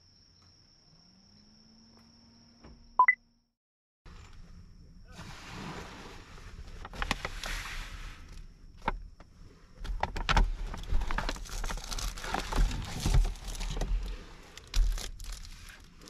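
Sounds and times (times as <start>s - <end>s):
rustling and crinkling: 5.1s - 16.0s.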